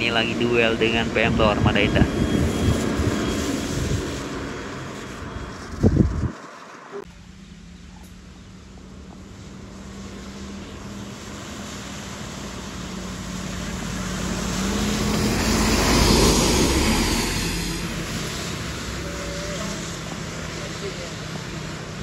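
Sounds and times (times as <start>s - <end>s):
truck engine humming: 0.0s - 22.0s
tyres hissing on wet asphalt: 9.2s - 22.0s.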